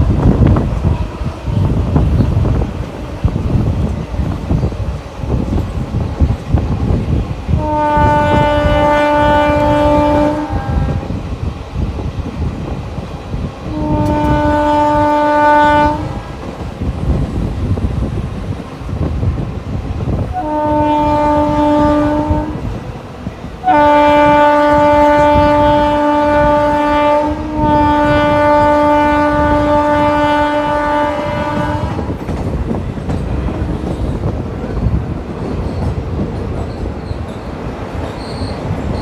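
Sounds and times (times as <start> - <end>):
train wheels clickety-clack on rails: 0.0 - 39.0
locomotive air horn blasts: 7.5 - 11.2, 13.7 - 16.2, 20.3 - 22.7, 23.6 - 32.2.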